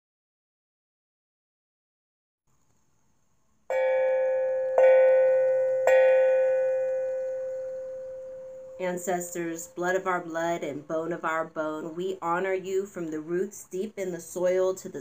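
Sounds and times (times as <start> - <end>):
bell ringing: 3.7 - 9.8.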